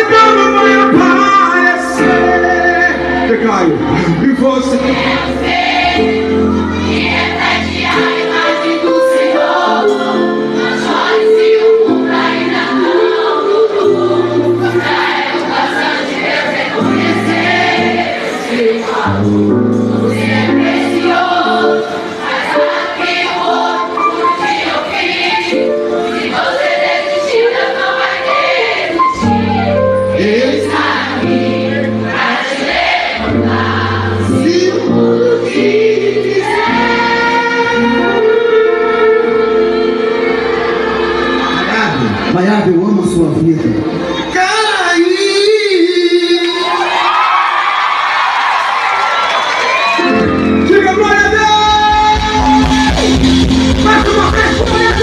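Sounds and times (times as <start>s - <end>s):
band playing gospel song: 0.0s - 55.0s
choir singing in unison: 0.2s - 42.4s.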